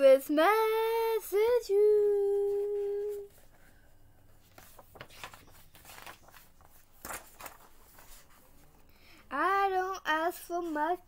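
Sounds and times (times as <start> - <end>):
girl singing: 0.0 - 3.4, 9.3 - 11.0
paper pages rustling: 2.3 - 8.9.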